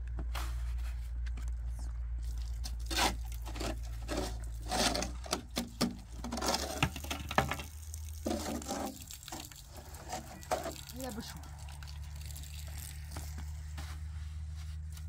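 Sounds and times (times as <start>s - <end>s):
shovel scraping gravel: 2.5s - 11.1s.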